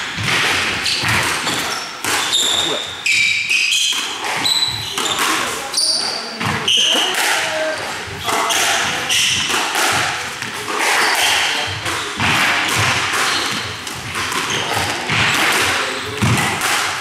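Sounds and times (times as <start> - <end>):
shoes squeaking on wooden floor: 0.0 - 9.5, 13.2 - 16.3
squash ball hitting rackets and walls: 0.0 - 17.0.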